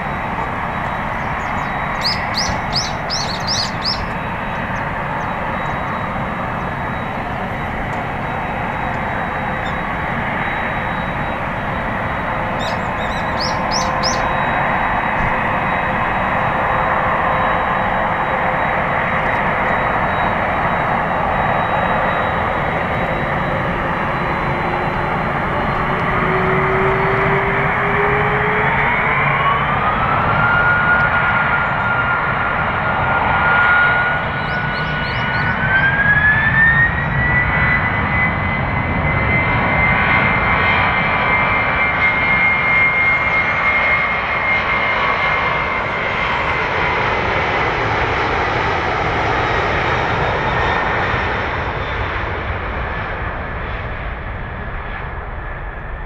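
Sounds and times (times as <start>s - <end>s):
jet engine whine spooling up: 0.0s - 56.0s
jet engines running at low power: 0.0s - 56.0s
small bird chirping: 0.4s - 6.8s, 8.8s - 9.8s, 12.4s - 14.6s, 34.4s - 35.6s.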